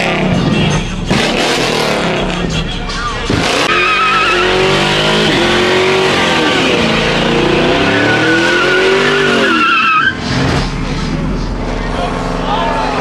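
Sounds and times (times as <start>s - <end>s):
car engine revving: 0.0s - 13.0s
tyres squealing: 3.4s - 4.8s, 7.7s - 10.3s.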